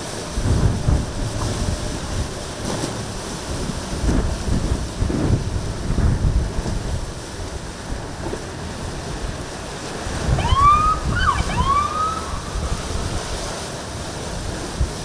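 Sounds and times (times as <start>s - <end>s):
choppy waves: 0.0s - 15.0s
wind on microphone: 0.0s - 15.0s
siren whoops: 10.3s - 12.9s.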